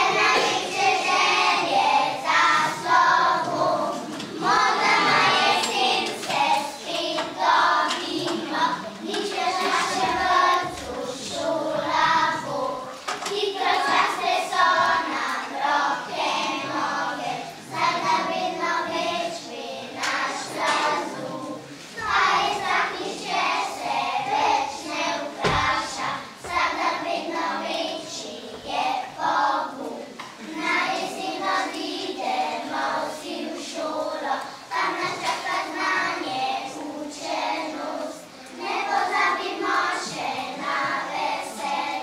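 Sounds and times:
children singing: 0.0s - 42.0s
thump: 25.4s - 26.6s.

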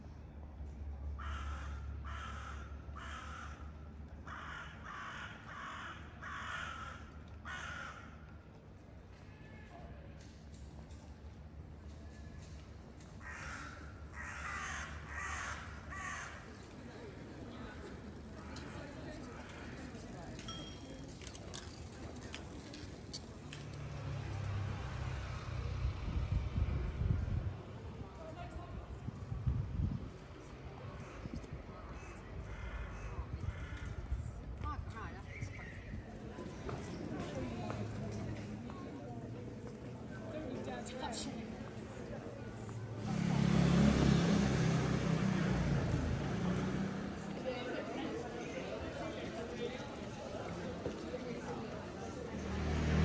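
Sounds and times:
crow cawing: 1.2s - 8.2s, 13.2s - 16.5s, 32.0s - 34.0s
faint voices: 11.6s - 24.5s, 26.8s - 53.0s.

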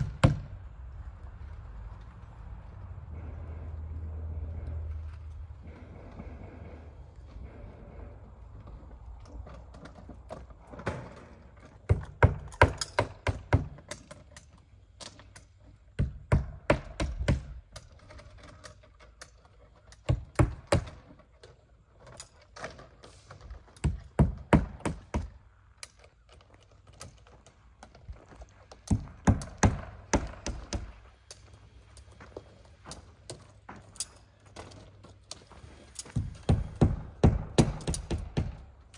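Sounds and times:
hammer striking nails: 0.0s - 0.6s, 11.9s - 14.2s, 16.0s - 17.8s, 20.0s - 21.0s, 23.8s - 25.4s, 28.9s - 31.0s, 36.1s - 38.8s.

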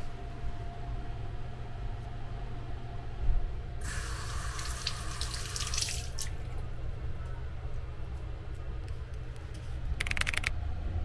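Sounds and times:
steady low hum: 0.0s - 11.0s
water splashing into washbasin: 3.8s - 6.5s.

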